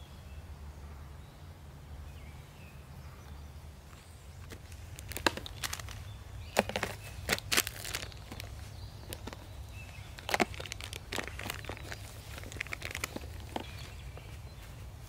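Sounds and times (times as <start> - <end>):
plastic items clacking: 4.4 - 14.3.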